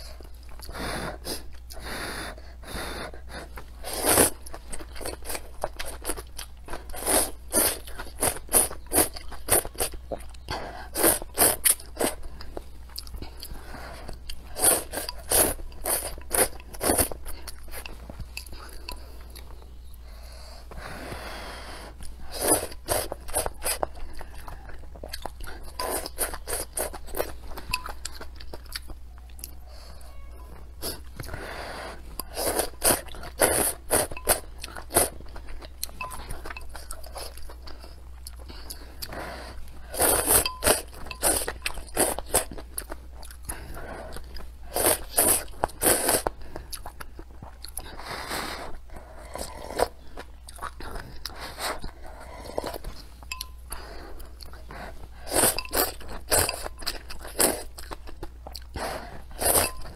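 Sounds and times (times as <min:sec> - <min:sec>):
slurping noodle soup: 0:00.0 - 0:19.5, 0:20.6 - 0:28.8, 0:30.8 - 0:58.0, 0:58.6 - 0:59.9
chewing: 0:00.0 - 0:20.1, 0:21.9 - 0:59.9.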